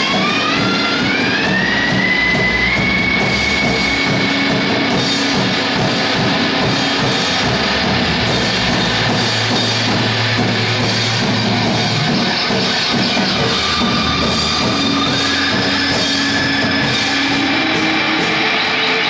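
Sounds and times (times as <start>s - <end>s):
distorted noise music: 0.0s - 19.0s
high whistling tone: 0.0s - 19.0s.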